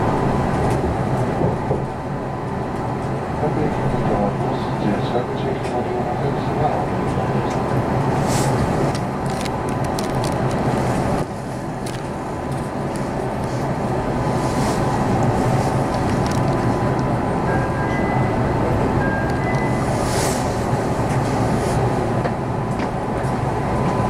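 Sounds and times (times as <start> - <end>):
train wheels rumbling: 0.0 - 24.0
sharp clicks and rattles: 8.9 - 10.7, 15.9 - 17.2.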